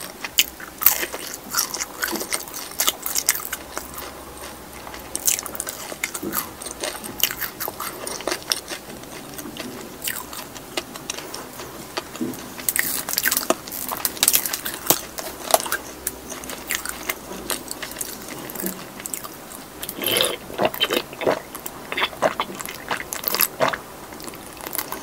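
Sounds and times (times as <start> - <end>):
mouth chewing with wet clicks: 0.0 - 25.0
gulping a drink: 17.9 - 25.0.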